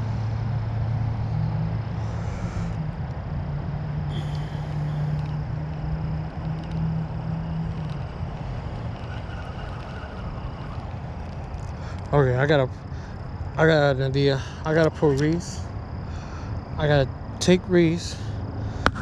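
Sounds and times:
low engine hum: 0.0s - 19.0s
faint hiss: 4.1s - 5.2s.

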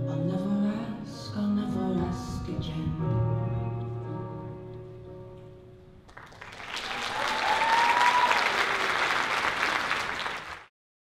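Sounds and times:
audience applause: 6.1s - 10.7s
audience cheering: 6.3s - 10.7s.

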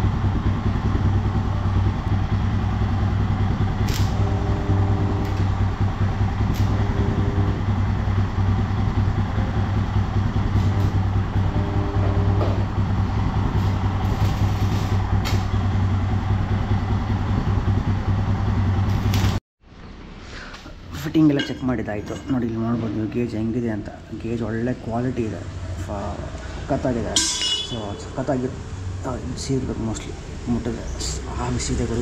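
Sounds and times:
low electrical hum: 1.2s - 29.7s
arc welding crackle: 3.6s - 11.5s, 12.6s - 15.8s, 18.8s - 19.4s.

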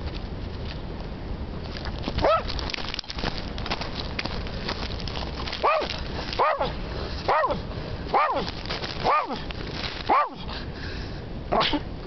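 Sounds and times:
low background noise: 0.0s - 12.0s
dog barking: 2.2s - 2.5s, 5.6s - 9.4s, 10.1s - 10.4s, 11.5s - 11.8s.

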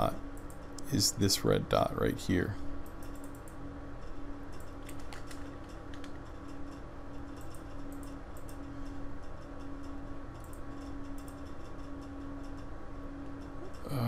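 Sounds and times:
steady hum: 0.0s - 14.0s
computer mouse clicks: 2.8s - 3.6s, 4.5s - 6.6s, 7.3s - 9.0s, 10.4s - 11.6s.

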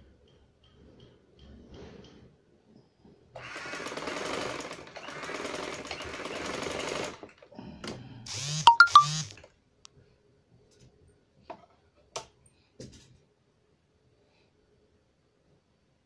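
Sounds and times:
sewing machine running: 3.4s - 7.3s.

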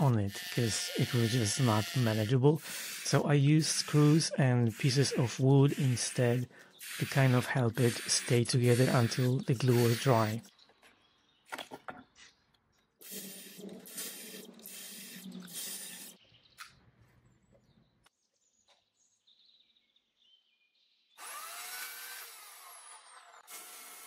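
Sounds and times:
cordless drill driving screws: 0.0s - 10.4s, 21.2s - 24.0s.

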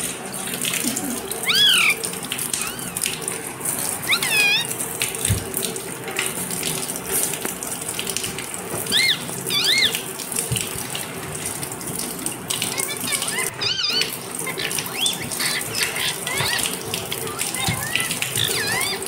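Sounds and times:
parakeet chirping: 1.4s - 3.1s, 4.0s - 4.8s, 8.9s - 10.1s, 12.7s - 19.0s.

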